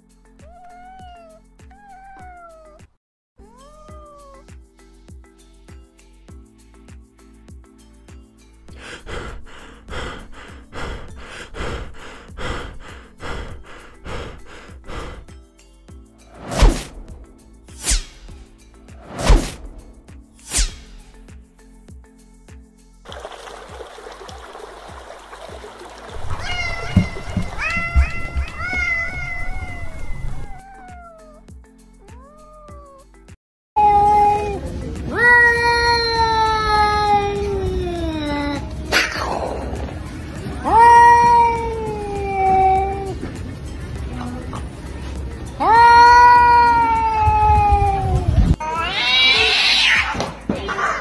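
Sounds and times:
cat meowing: 0:00.4 - 0:04.5, 0:26.2 - 0:31.4, 0:32.0 - 0:33.1, 0:35.1 - 0:38.5, 0:45.6 - 0:50.2
low thuds: 0:26.8 - 0:29.3.

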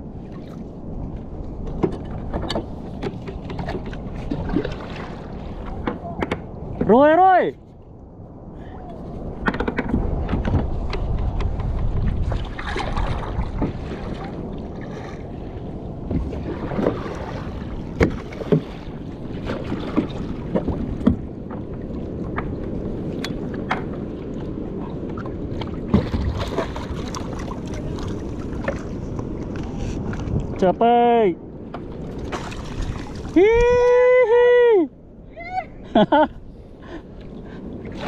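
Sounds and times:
water rushing along hull: 0:00.0 - 0:38.0
paddle splashing into water: 0:01.6 - 0:06.9, 0:11.4 - 0:24.5, 0:25.1 - 0:30.3, 0:31.7 - 0:33.5.

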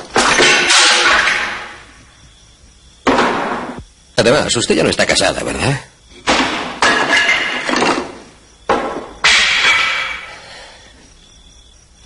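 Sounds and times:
loud ringing impacts: 0:06.2 - 0:10.4.

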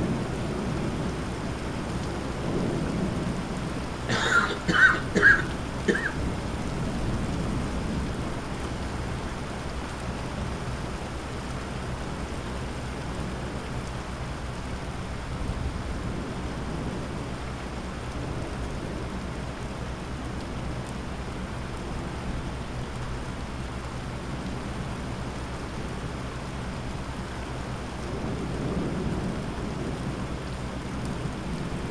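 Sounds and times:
heavy rain pouring: 0:00.0 - 0:31.9
thunder rumble: 0:27.7 - 0:31.9.

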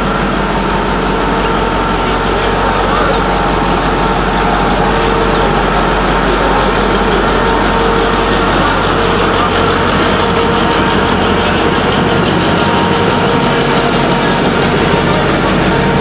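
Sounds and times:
locomotive diesel engine drone: 0:00.0 - 0:16.0.

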